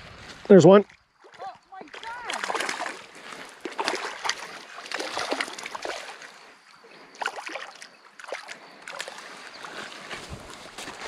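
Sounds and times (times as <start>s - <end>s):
fish splashing at water surface: 1.2s - 6.5s, 7.1s - 11.0s.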